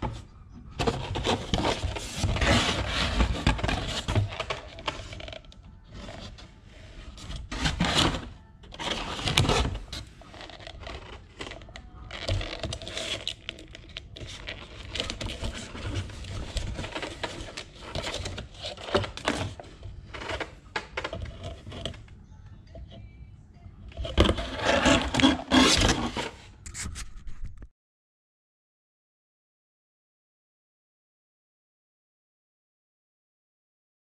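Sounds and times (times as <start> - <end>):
plastic tubs and cardboard rustling: 0.0 - 22.1, 23.9 - 27.5.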